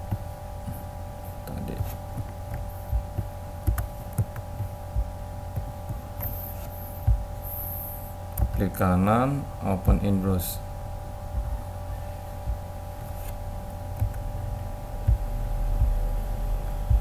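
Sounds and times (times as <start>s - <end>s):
electrical hum: 0.0s - 17.0s
keyboard and mouse clicks: 1.8s - 4.7s, 13.9s - 14.2s.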